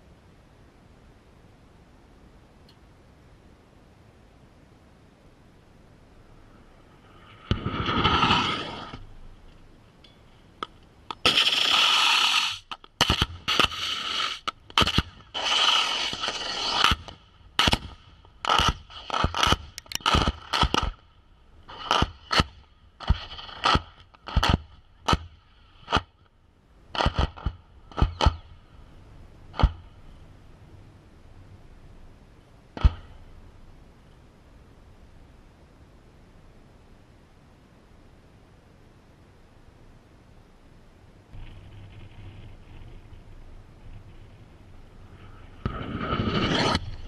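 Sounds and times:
sharp impact cracks: 7.4 - 9.1, 10.6 - 21.0, 21.7 - 26.1, 26.9 - 28.5, 29.5 - 30.0, 32.8 - 33.3.

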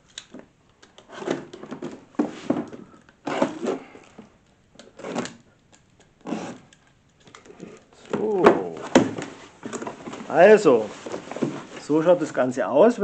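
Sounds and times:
cardboard flaps rustling: 1.0 - 4.3, 7.6 - 12.5
knife cutting cardboard box: 3.2 - 3.9, 6.2 - 6.8.

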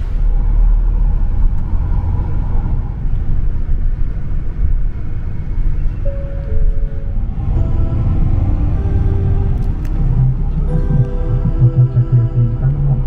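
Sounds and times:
bus rumbling: 0.0 - 13.0
background music: 6.1 - 13.0.

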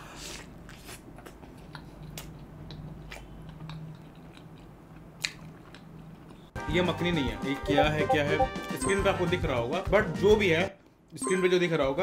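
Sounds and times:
chewing pizza: 0.0 - 6.6.

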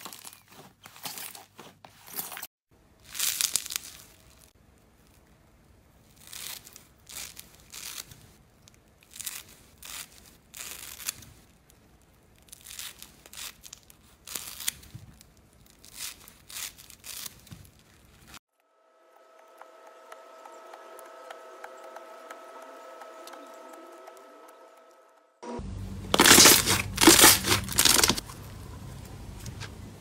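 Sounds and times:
scissors cutting foam sponge: 26.1 - 28.3.

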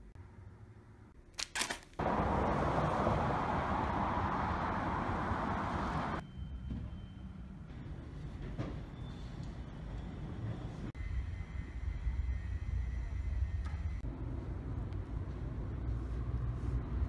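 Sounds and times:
road traffic noise: 2.0 - 8.6, 9.3 - 17.0.

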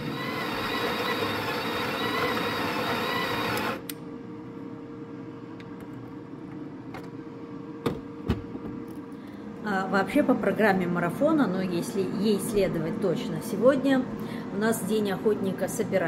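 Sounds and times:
coffee grinder grinding beans: 0.0 - 3.8
faint hum: 3.0 - 16.0.

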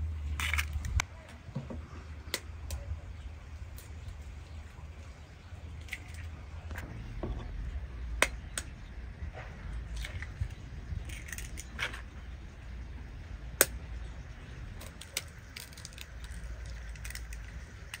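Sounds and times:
low steady rumble: 0.0 - 18.0
eggshells crackling: 1.9 - 6.8, 9.7 - 18.0
eggs cracked against glass bowl: 14.8 - 18.0.

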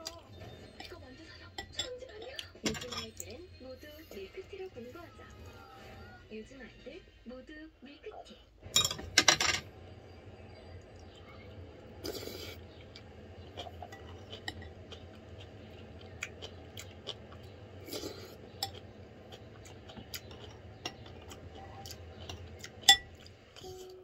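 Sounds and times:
steady low hum: 0.0 - 24.0
spoon scraping ceramic bowl: 1.6 - 3.3
chewing: 12.0 - 24.0.

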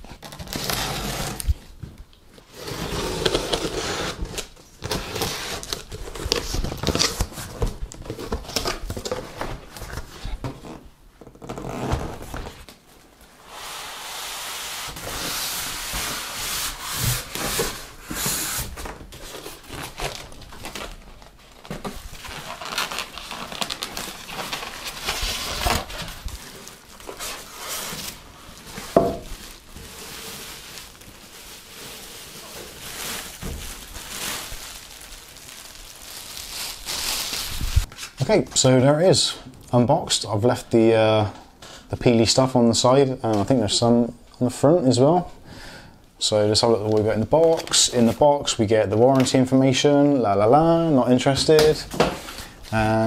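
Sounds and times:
polystyrene and cardboard scraping: 0.0 - 1.7, 2.4 - 12.7, 13.3 - 38.2
plastic bag crinkling: 19.3 - 37.9.

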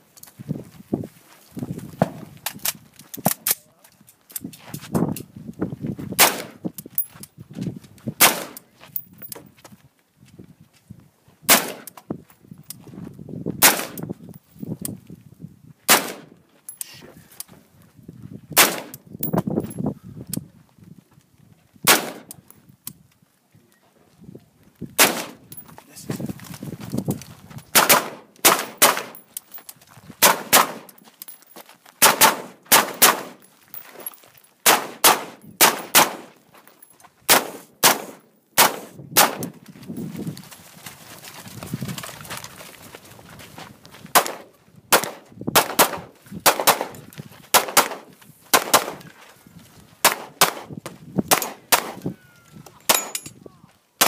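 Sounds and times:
rifle shots: 6.2 - 6.6, 8.2 - 8.6, 11.5 - 11.9, 13.6 - 14.0, 15.9 - 16.4, 18.6 - 19.0, 21.9 - 22.3, 25.0 - 25.5, 27.7 - 29.2, 30.2 - 30.9, 32.0 - 33.4, 34.6 - 36.4, 37.3 - 39.5, 44.1 - 49.0, 50.0 - 50.7, 51.3 - 52.0.

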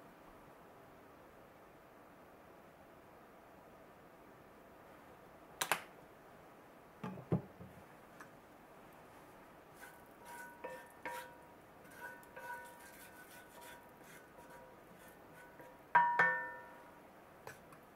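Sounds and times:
light taps with ringing tones: 16.0 - 16.8.

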